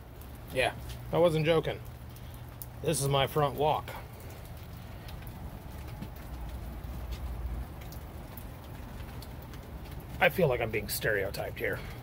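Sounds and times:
low rumble and hiss: 0:00.0 - 0:12.0
faint taps: 0:05.1 - 0:06.5.

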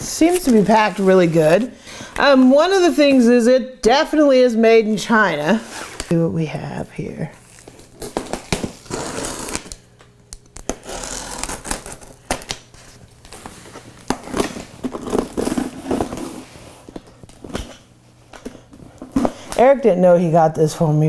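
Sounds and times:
tape and plastic being slit: 0:07.6 - 0:16.4.

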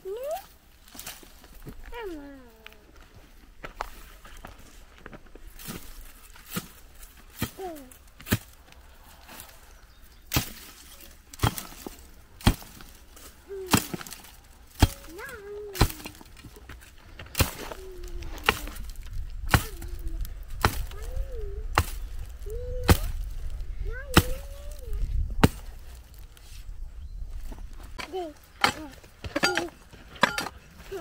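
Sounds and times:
pickaxe striking stony ground: 0:05.6 - 0:08.6, 0:10.3 - 0:19.8, 0:20.5 - 0:21.0, 0:21.7 - 0:22.1, 0:25.4 - 0:25.8, 0:28.0 - 0:30.6.

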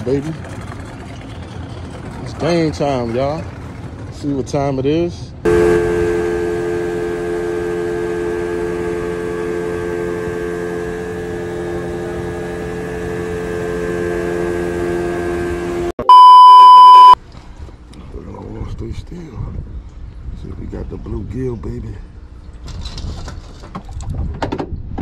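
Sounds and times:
boat motor running: 0:00.0 - 0:18.0
loud test tone beep: 0:05.5 - 0:17.2.

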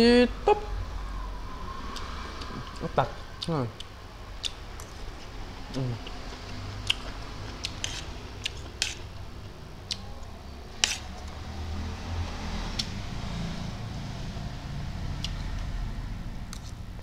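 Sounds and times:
mouth clicks while chewing: 0:01.9 - 0:02.8, 0:03.8 - 0:05.0.

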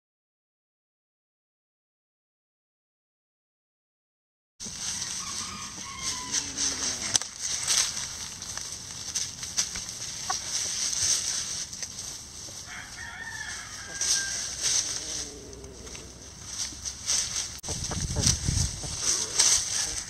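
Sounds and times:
hens scratching in dry straw: 0:04.6 - 0:20.0
distant rooster crowing: 0:04.8 - 0:07.2, 0:12.6 - 0:16.2, 0:18.9 - 0:20.0
hen clucking: 0:04.9 - 0:07.3, 0:10.0 - 0:11.0, 0:12.5 - 0:16.8, 0:17.4 - 0:20.0.

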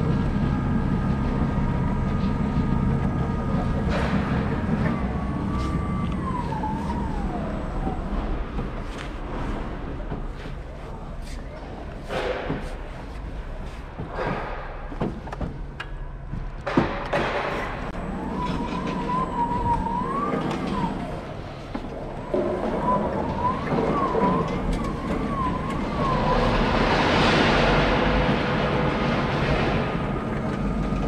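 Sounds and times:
wheels rumbling on concrete: 0:00.0 - 0:31.0.

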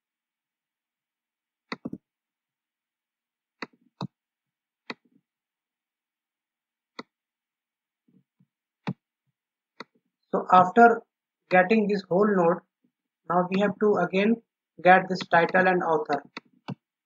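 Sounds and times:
computer mouse clicks: 0:01.7 - 0:02.0.

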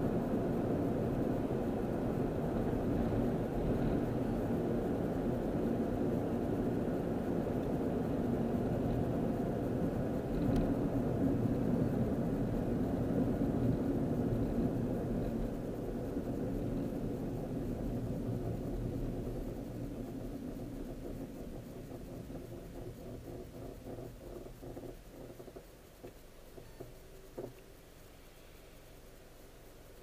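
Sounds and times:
car engine and road rumble: 0:00.0 - 0:30.0
tyre hiss: 0:25.6 - 0:30.0.

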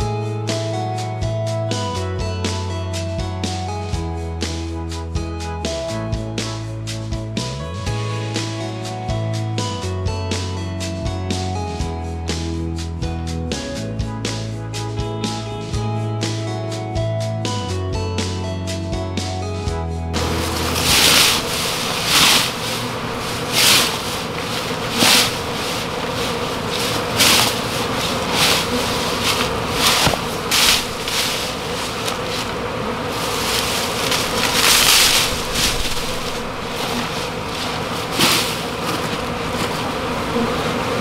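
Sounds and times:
honey bees buzzing: 0:07.9 - 0:09.2, 0:20.2 - 0:41.0.

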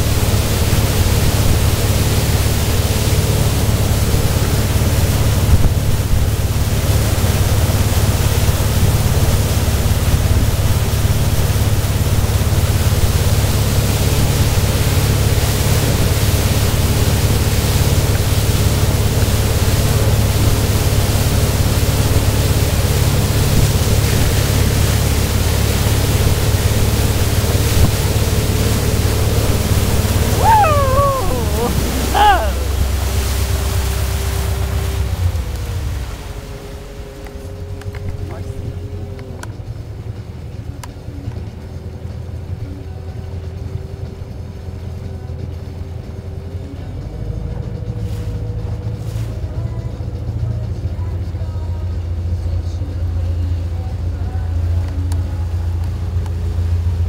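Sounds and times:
boat engine running: 0:00.0 - 0:57.0
rush of boat wake: 0:00.0 - 0:57.0
voice calling out: 0:30.3 - 0:32.8.

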